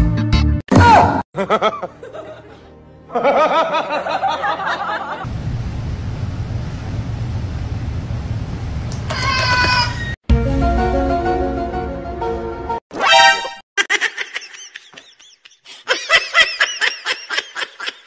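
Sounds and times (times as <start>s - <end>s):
background music: 0.0s - 5.2s, 10.3s - 13.6s
person snickering and laughing: 1.4s - 5.2s, 13.8s - 18.0s
low hum: 5.3s - 9.0s.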